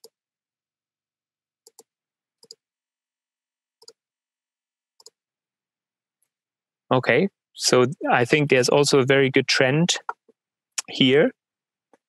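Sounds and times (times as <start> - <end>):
computer mouse clicks: 1.6 - 2.6, 3.8 - 4.0, 5.0 - 5.2.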